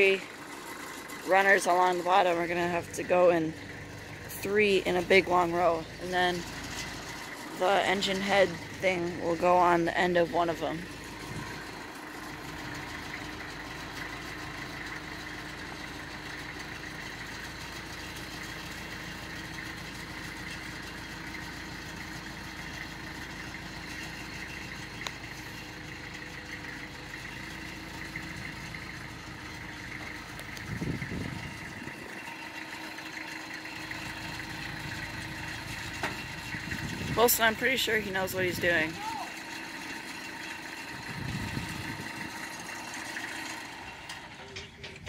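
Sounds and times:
tractor engine idling: 0.0 - 45.0
low rumble: 2.1 - 13.4, 27.3 - 32.4, 40.9 - 42.6.

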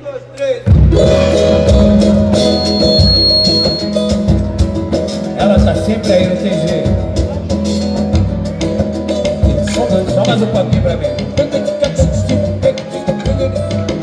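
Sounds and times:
band with drums and bass: 0.0 - 14.0.

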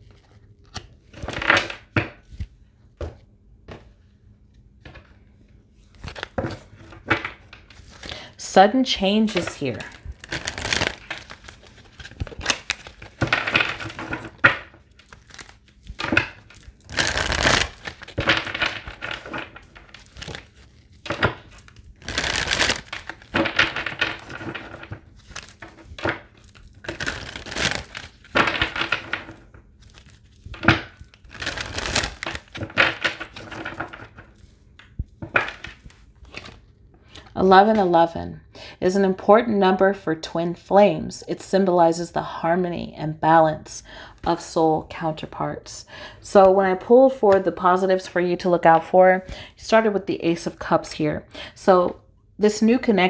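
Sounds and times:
cards being shuffled: 0.0 - 3.9, 5.8 - 8.2, 9.2 - 37.8.

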